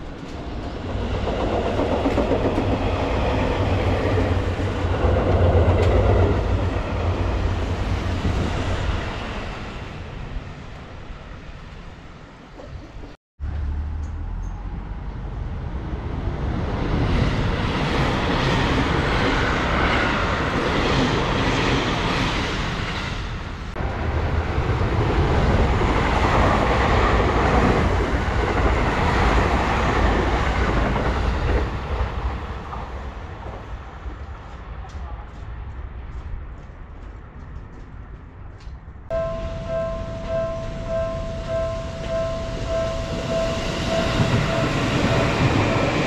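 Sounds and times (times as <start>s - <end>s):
train running past: 0.0s - 46.0s.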